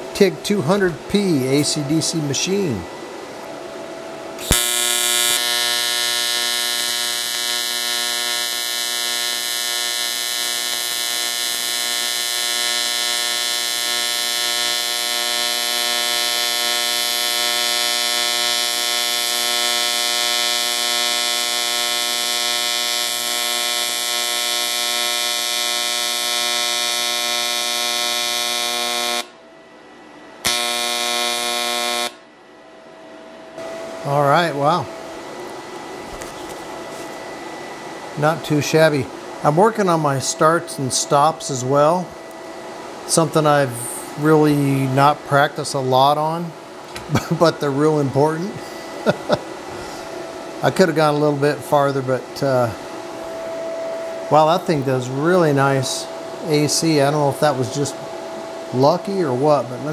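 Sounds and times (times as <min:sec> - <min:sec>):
sharp crack of arc striking: 0:04.4 - 0:11.8
welding arc buzzing: 0:04.4 - 0:29.4, 0:30.4 - 0:32.3, 0:43.0 - 0:53.4.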